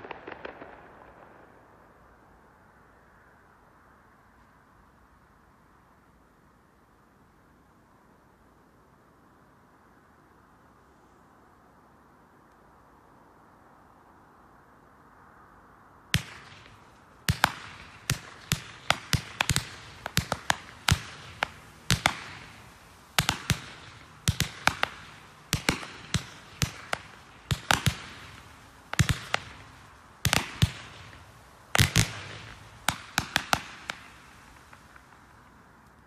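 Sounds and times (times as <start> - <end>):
fireworks exploding with echoing bangs: 0.0 - 2.5, 16.1 - 35.8.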